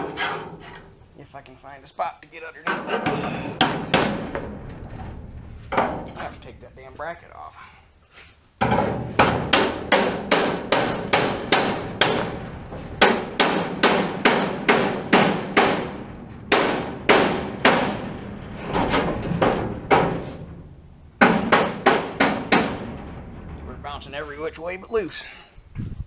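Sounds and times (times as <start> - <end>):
hammer clanging on steel: 2.6 - 6.4, 8.6 - 20.6, 21.2 - 25.1.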